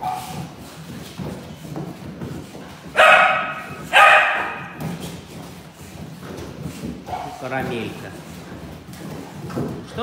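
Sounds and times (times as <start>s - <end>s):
dog barking: 0.0s - 0.4s, 3.0s - 4.8s, 7.1s - 7.4s.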